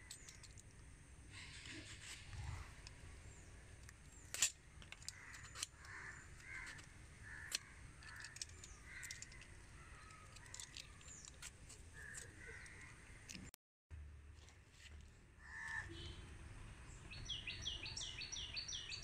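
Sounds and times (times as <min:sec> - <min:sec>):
small birds chirping: 0:00.0 - 0:13.5, 0:14.8 - 0:19.0
faint crows cawing: 0:04.8 - 0:13.5, 0:15.3 - 0:16.4.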